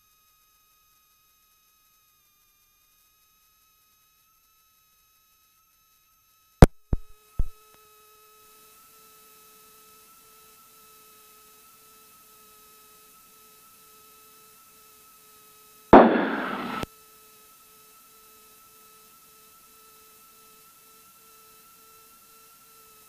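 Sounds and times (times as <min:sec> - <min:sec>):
sharp electrical clicks: 0:06.6 - 0:07.5, 0:16.0 - 0:16.9
faint electronic whine: 0:16.0 - 0:16.8
radio static burst: 0:16.0 - 0:16.8.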